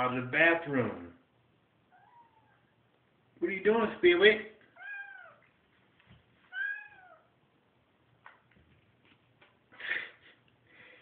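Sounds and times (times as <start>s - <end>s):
cat meowing: 1.9s - 2.8s, 4.7s - 5.5s, 6.5s - 7.4s.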